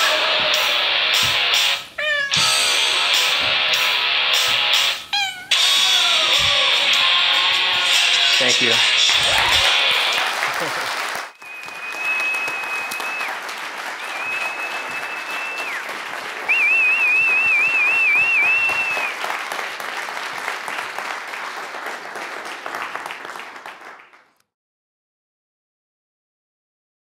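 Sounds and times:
crowd whistling: 0.0 - 19.2
audience applauding: 0.0 - 24.4.

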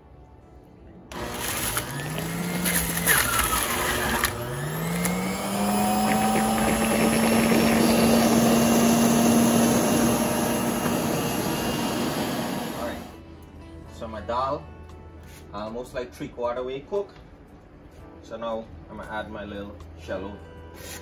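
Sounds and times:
electric juicer motor humming: 1.1 - 13.2.

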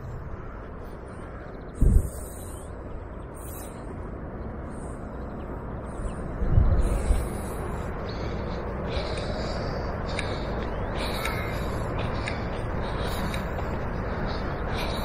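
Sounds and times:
crows cawing: 0.0 - 1.7, 8.0 - 15.0
bird calls: 0.0 - 15.0
rushing outdoor background noise: 0.0 - 15.0.

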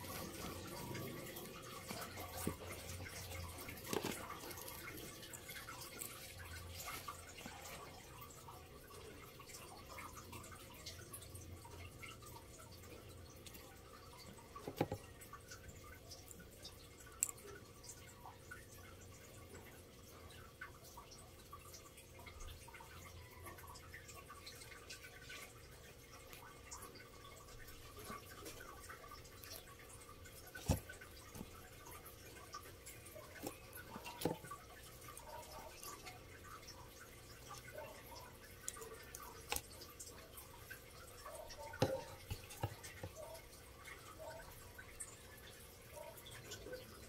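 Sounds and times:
gecko feeding clicks and crunches: 0.0 - 12.3, 13.2 - 19.0, 26.1 - 45.5.

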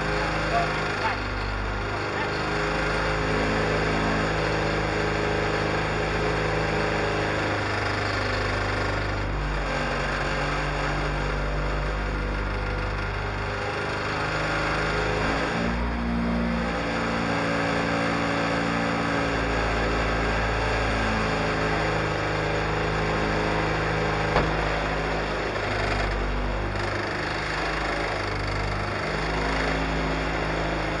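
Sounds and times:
car engine idling: 24.2 - 26.7.

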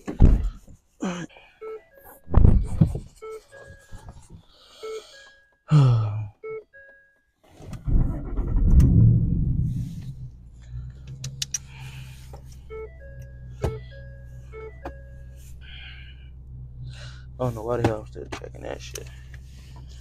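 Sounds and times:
car warning chime dinging: 1.6 - 2.3, 3.2 - 7.3, 12.4 - 16.7
car engine starting and idling: 7.5 - 20.0.

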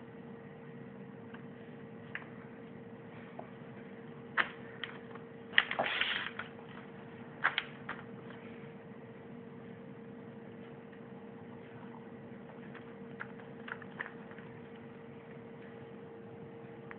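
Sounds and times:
faint steady hum: 0.0 - 16.9
paper rustling: 5.6 - 8.0.

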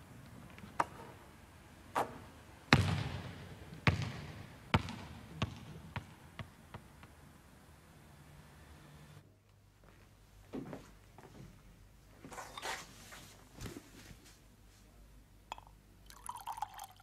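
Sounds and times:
basketball bouncing on wooden floor: 2.7 - 6.9.

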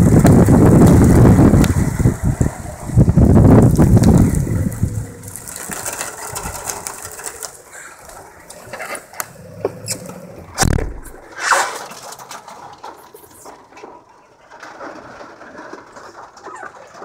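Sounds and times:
wind rumble on microphone: 0.0 - 7.4
raindrops ticking: 0.0 - 10.2
handling noise: 0.1 - 17.0
heavy thump: 10.6 - 11.3.

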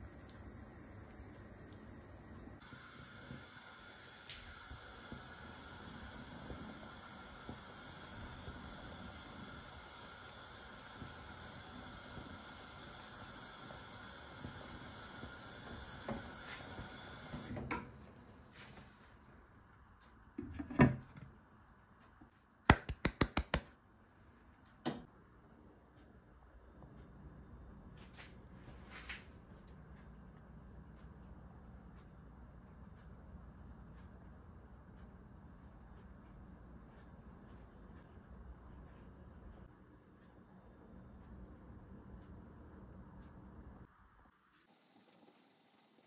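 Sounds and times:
milk simmering with hiss: 0.0 - 19.7, 32.4 - 46.0.

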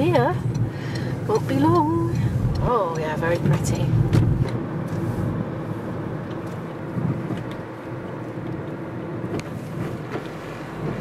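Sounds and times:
car engine and tyre rumble: 0.0 - 11.0
faint ticks: 0.4 - 3.8.

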